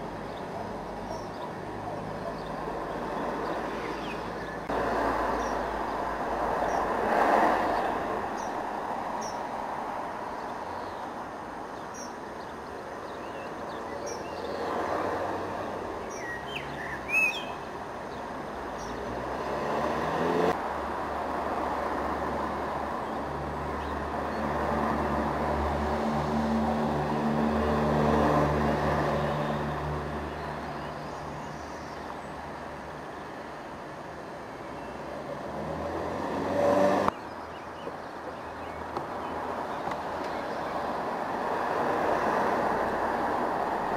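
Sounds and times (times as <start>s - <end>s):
small birds chirping: 0.0s - 9.5s, 10.2s - 20.6s, 29.0s - 33.7s, 37.0s - 41.2s
road traffic: 0.0s - 43.9s.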